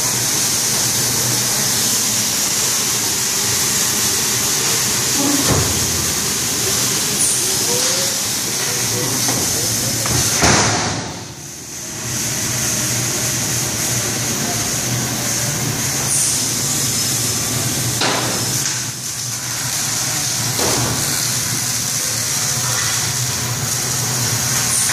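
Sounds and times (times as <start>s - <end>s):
high hiss: 0.0s - 23.0s.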